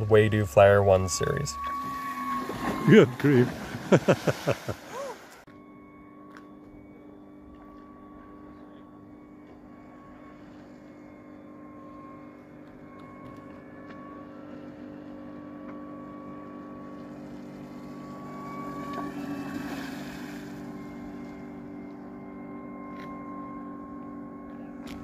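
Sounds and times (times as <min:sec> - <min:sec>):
electric motor hum: 0:00.0 - 0:25.0
hydrofoil high whistle: 0:00.0 - 0:25.0
rush of water spray: 0:02.6 - 0:05.4.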